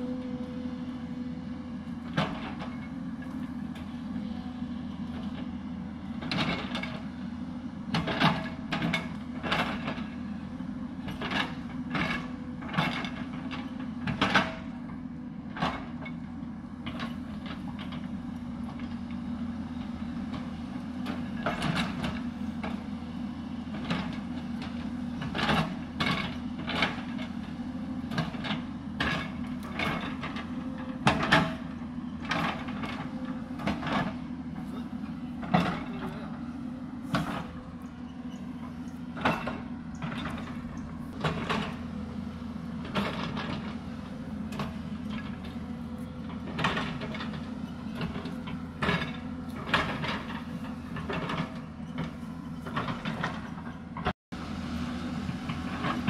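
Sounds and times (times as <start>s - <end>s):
excavator diesel engine running: 0.0s - 56.0s
bucket clanking and scraping earth: 23.7s - 54.1s.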